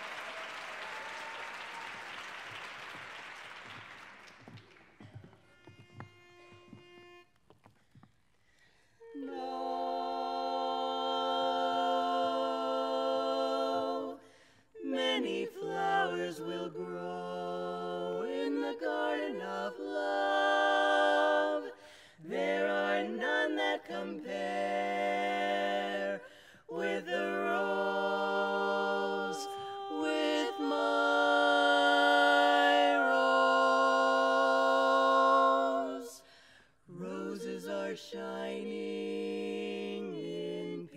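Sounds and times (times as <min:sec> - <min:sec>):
women singing in close harmony: 0:09.0 - 0:36.3, 0:36.9 - 0:40.9.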